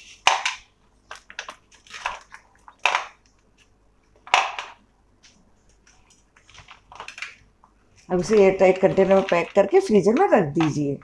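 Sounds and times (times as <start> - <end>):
frozen cubes knocking onto plate: 0.3 - 3.2, 4.2 - 4.8.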